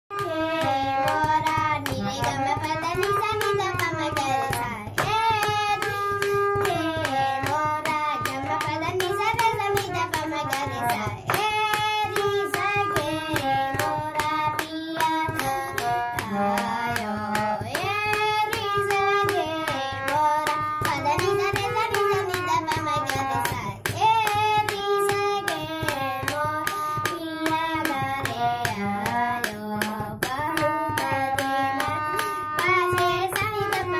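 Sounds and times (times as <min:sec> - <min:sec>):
boy singing: 0:00.1 - 0:33.9
regular clicking beat: 0:00.1 - 0:33.9
harmonium drone: 0:00.2 - 0:33.9.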